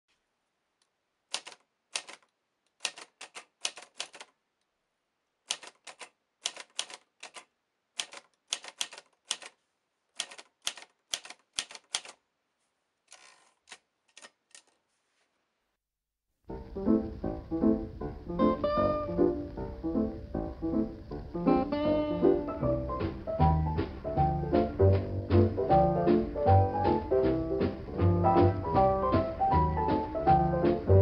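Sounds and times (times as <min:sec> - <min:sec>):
typewriter key strikes: 0:01.3 - 0:02.2, 0:02.8 - 0:04.3, 0:05.5 - 0:09.5, 0:10.2 - 0:12.2
soft typewriter clicks: 0:01.3 - 0:04.4, 0:05.5 - 0:09.6, 0:10.2 - 0:12.2, 0:13.1 - 0:14.8.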